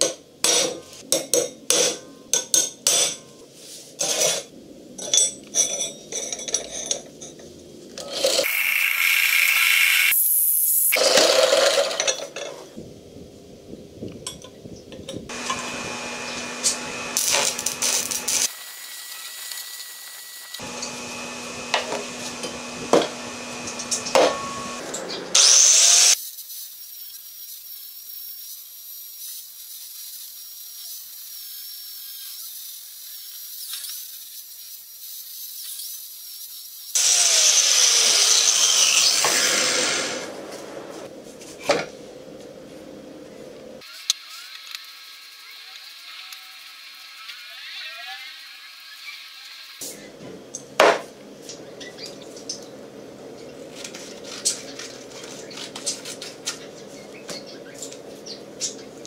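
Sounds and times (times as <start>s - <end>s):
angle grinder grinding metal: 8.0s - 12.3s, 15.3s - 26.2s, 36.9s - 40.4s
drill boring through steel: 8.4s - 12.0s, 15.3s - 26.2s, 37.0s - 40.3s.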